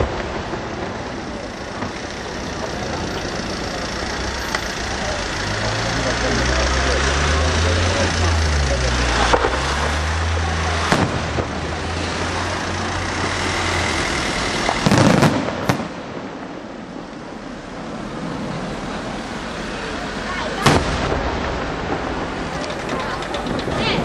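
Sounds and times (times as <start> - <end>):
firework shells bursting: 9.0 - 16.6, 20.6 - 24.0.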